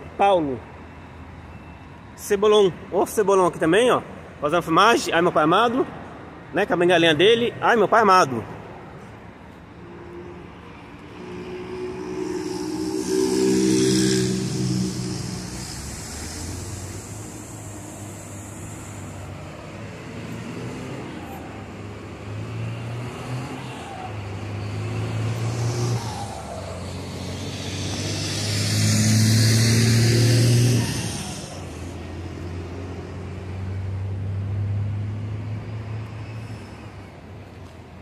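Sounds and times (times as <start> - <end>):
bus passing with hiss: 0.0 - 38.0
diesel bus engines running: 8.3 - 38.0.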